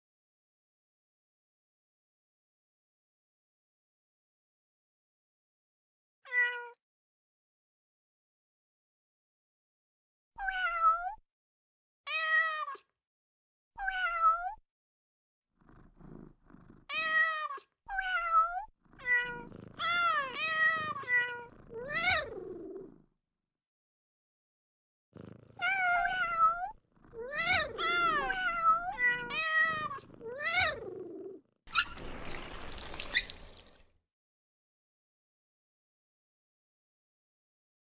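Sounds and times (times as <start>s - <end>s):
cartoon cat meows: 6.3s - 6.8s, 10.4s - 11.2s, 12.1s - 12.9s, 13.8s - 14.6s, 16.9s - 22.3s, 27.3s - 30.9s.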